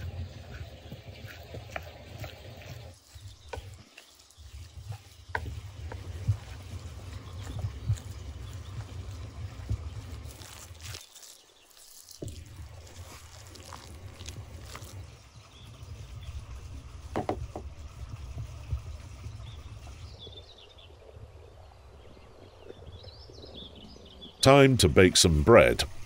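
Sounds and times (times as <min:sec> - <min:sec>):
wooden spoon scraping wooden bowl: 0:00.0 - 0:15.1.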